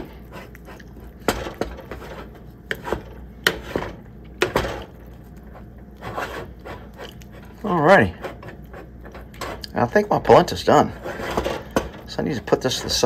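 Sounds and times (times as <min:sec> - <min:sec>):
spatula scraping pan: 0:00.0 - 0:13.0.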